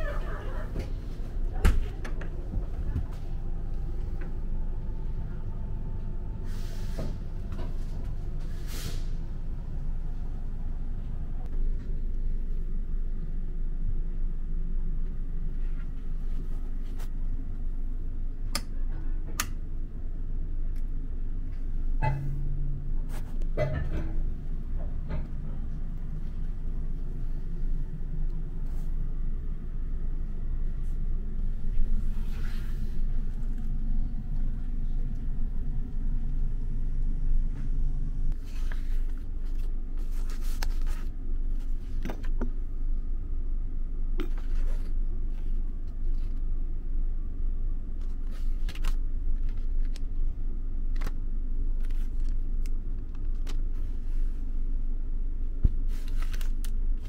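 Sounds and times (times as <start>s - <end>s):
train low rumble: 0.0s - 57.0s
paper leaflets rustling: 55.9s - 57.0s.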